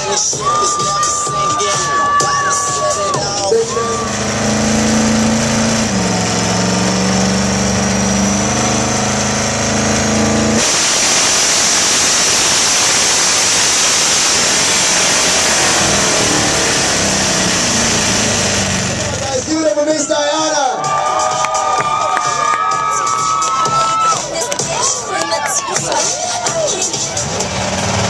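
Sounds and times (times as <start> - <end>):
loud even rush: 0.0 - 19.7
car engine running: 0.0 - 20.6, 21.6 - 28.0.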